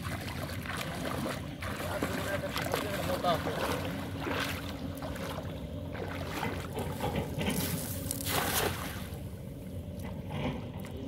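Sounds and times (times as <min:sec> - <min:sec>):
steady low hum: 0:00.0 - 0:11.0
water sloshing around legs: 0:00.0 - 0:11.0
net splashing onto water: 0:07.5 - 0:09.2.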